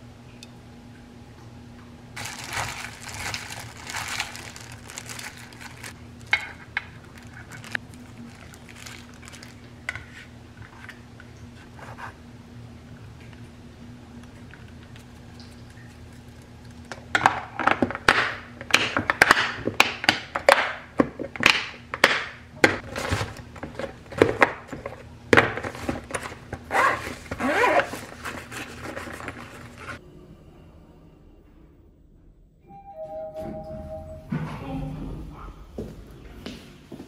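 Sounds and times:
room hum: 0:00.0 - 0:37.0
scraping and rustling: 0:02.2 - 0:11.0, 0:25.6 - 0:30.0.

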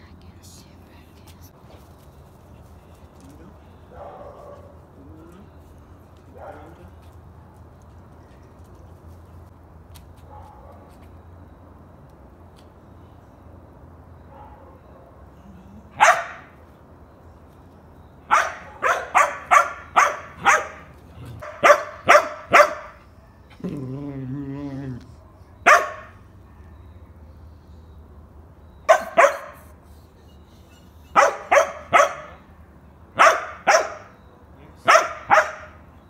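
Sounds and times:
dog barking: 0:03.9 - 0:04.8, 0:06.3 - 0:06.9, 0:10.3 - 0:10.9, 0:14.3 - 0:15.1, 0:16.0 - 0:16.6, 0:18.3 - 0:23.0, 0:25.6 - 0:26.7, 0:28.9 - 0:29.7, 0:31.1 - 0:32.4, 0:33.2 - 0:34.2, 0:34.8 - 0:35.8.

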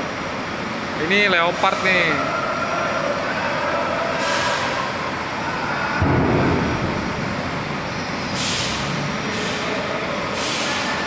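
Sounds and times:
air brake hisses: 0:04.2 - 0:04.9, 0:08.2 - 0:11.0
diesel engine rumble: 0:04.3 - 0:10.7.

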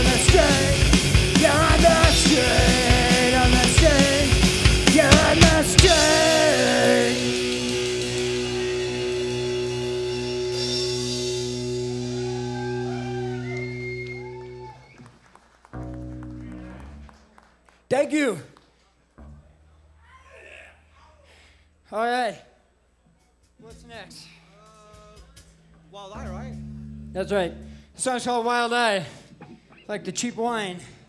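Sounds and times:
drum kit: 0:00.0 - 0:14.9, 0:23.2 - 0:28.0
bass guitar: 0:00.0 - 0:15.0, 0:15.7 - 0:17.4, 0:19.1 - 0:21.6, 0:23.2 - 0:28.2
electric guitar: 0:00.0 - 0:15.1, 0:15.7 - 0:17.4, 0:25.0 - 0:28.0
shouted vocals: 0:11.8 - 0:15.0, 0:20.0 - 0:21.2.

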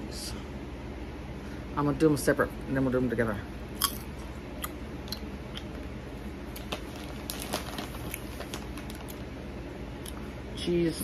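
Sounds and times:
popcorn being chewed: 0:03.7 - 0:09.3, 0:10.0 - 0:10.3.

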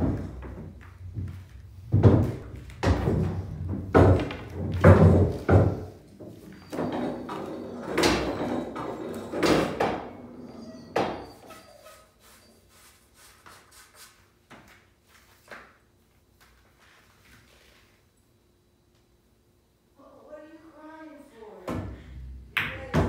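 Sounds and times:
pool balls rolling through return track: 0:00.0 - 0:11.3.

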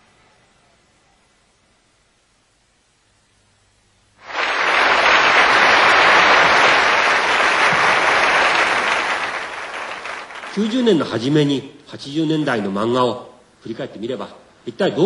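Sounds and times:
audience applauding: 0:04.2 - 0:11.2.

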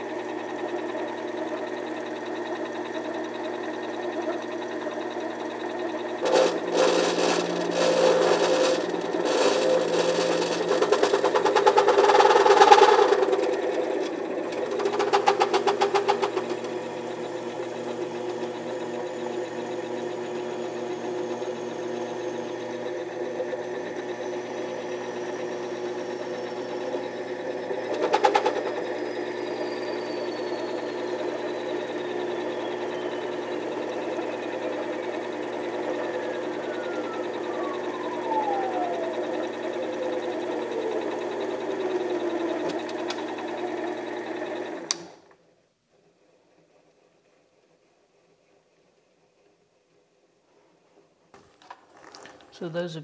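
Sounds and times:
lathe motor running: 0:00.0 - 0:45.2
tool cutting brass: 0:06.2 - 0:32.5.

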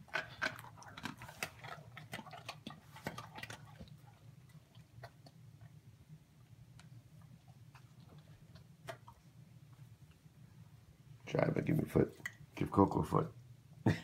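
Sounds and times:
dog crunching hard treat: 0:00.0 - 0:05.4.

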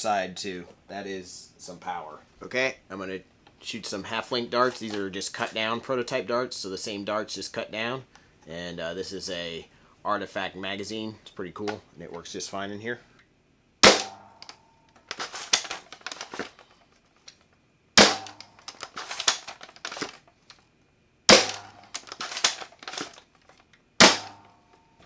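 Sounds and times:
dart blaster shot crack: 0:13.8 - 0:14.4, 0:18.0 - 0:18.5, 0:21.3 - 0:21.8, 0:24.0 - 0:24.5
bolt clacking and rattling: 0:18.2 - 0:20.2, 0:21.5 - 0:23.6.

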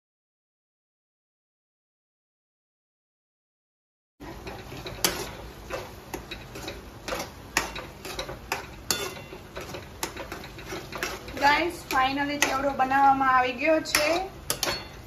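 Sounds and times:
metal spatula scraping pan: 0:04.2 - 0:15.0.

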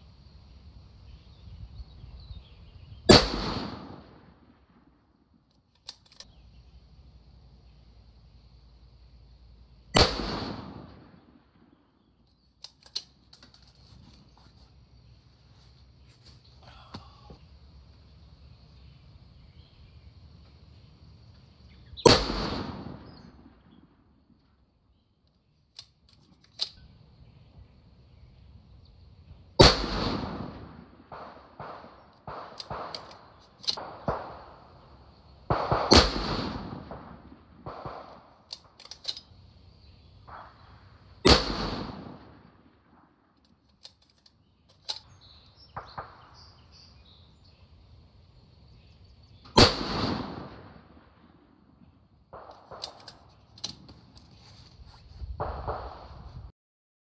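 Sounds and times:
rifle shots: 0:03.1 - 0:04.8, 0:09.9 - 0:11.7, 0:22.0 - 0:23.8, 0:29.6 - 0:34.8, 0:35.4 - 0:38.8, 0:40.3 - 0:43.1, 0:45.7 - 0:46.6, 0:49.5 - 0:51.4, 0:52.3 - 0:53.2, 0:55.4 - 0:56.2
small clicks and knocks: 0:05.5 - 0:06.4, 0:12.3 - 0:14.7, 0:38.5 - 0:39.3, 0:43.4 - 0:45.1, 0:52.4 - 0:54.4.

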